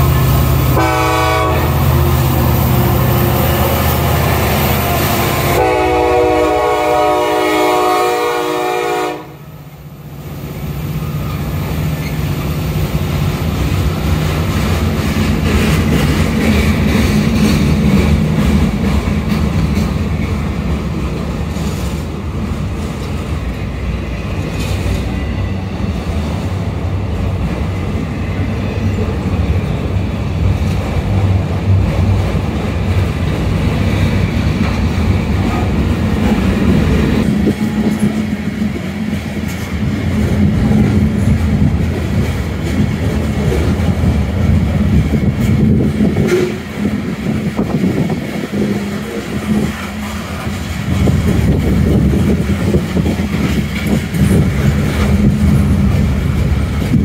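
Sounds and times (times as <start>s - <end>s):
train horn blast: 0.0s - 9.5s, 46.2s - 46.6s
diesel locomotive engine rumble: 0.0s - 57.0s.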